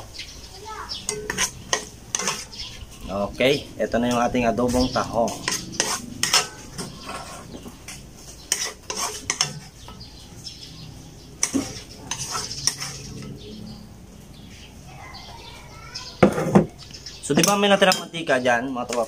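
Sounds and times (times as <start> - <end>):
metal spoon scraping a wok: 1.0 - 3.1, 5.2 - 10.5, 11.4 - 13.6.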